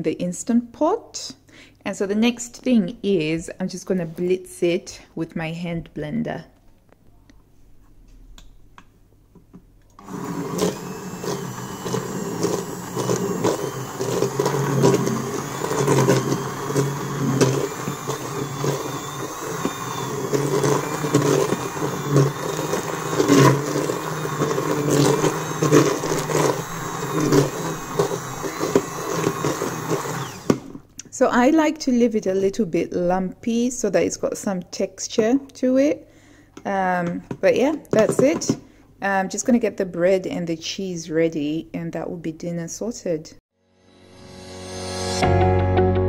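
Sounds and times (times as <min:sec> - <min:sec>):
hand blender running: 0:10.0 - 0:30.9.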